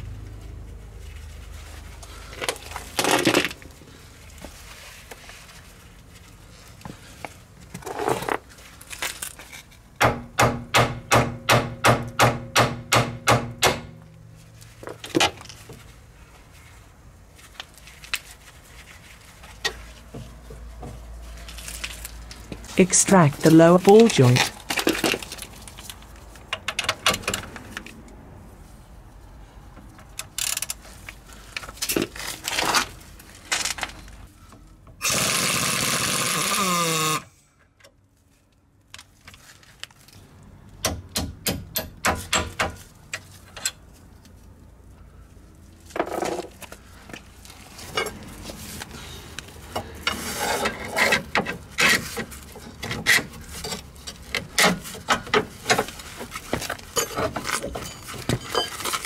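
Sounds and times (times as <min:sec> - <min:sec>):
power tool running: 0:35.0 - 0:37.3
metal tools clinking: 0:56.9 - 0:59.0.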